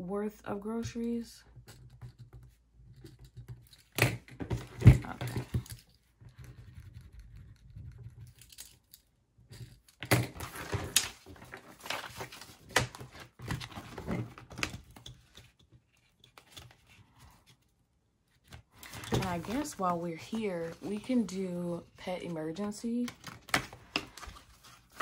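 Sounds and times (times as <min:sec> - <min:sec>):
paper and plastic rustling: 0:10.4 - 0:17.5, 0:18.3 - 0:25.0.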